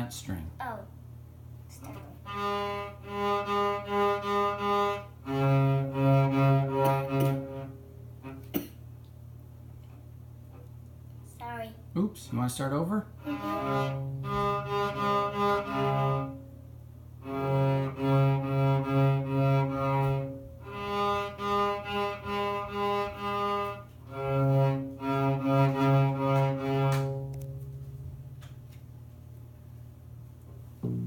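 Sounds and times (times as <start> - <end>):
cello bowed notes: 1.9 - 8.5, 13.2 - 16.6, 17.2 - 28.2, 30.8 - 31.0.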